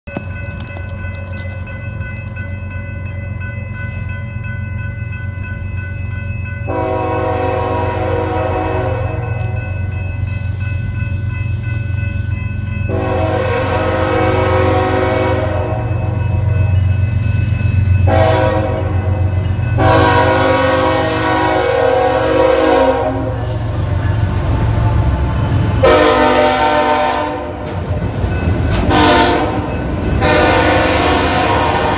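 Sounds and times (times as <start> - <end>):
crossing bell ringing: 0.1 - 31.9
locomotive engine rumble: 0.1 - 31.9
train horn blasts: 6.7 - 9.6, 12.9 - 16.5, 18.0 - 23.6, 25.4 - 27.8, 28.8 - 31.9.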